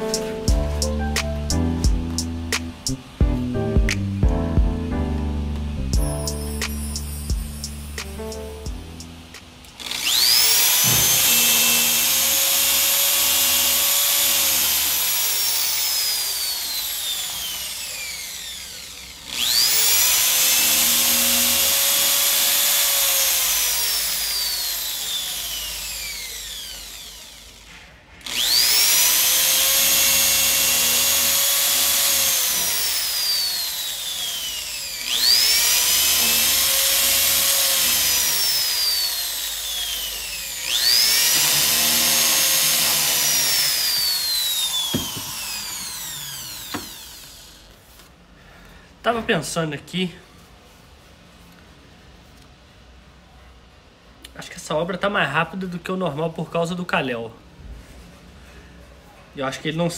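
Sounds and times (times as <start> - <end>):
electric drill boring paper: 6.2 - 8.1, 9.2 - 48.1.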